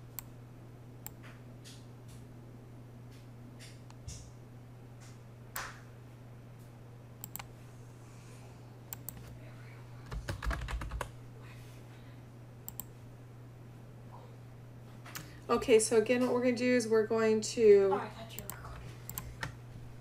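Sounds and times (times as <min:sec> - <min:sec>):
steady low hum: 0:00.0 - 0:20.0
computer keyboard typing: 0:07.2 - 0:07.5, 0:10.1 - 0:11.1, 0:18.4 - 0:19.6.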